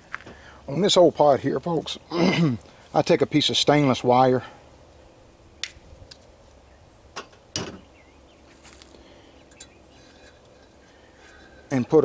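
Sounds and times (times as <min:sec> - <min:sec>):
pliers and wire tapping metal pot: 0:09.5 - 0:11.8.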